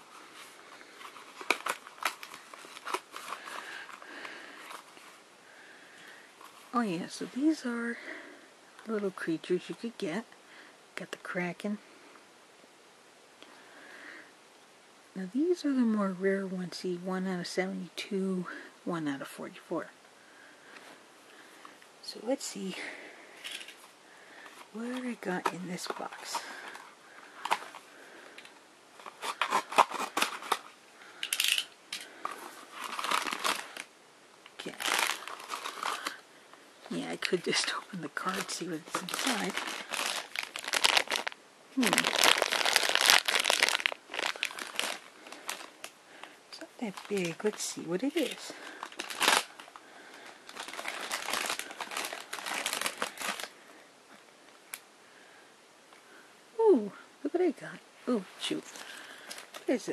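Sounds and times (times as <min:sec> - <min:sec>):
bubble wrap crackling: 0:00.0 - 0:05.2, 0:24.4 - 0:36.2, 0:36.8 - 0:53.6
crinkly rustle: 0:00.0 - 0:05.2, 0:06.4 - 0:10.0, 0:22.7 - 0:33.9, 0:34.5 - 0:36.2, 0:36.8 - 0:53.8, 0:58.2 - 0:59.9.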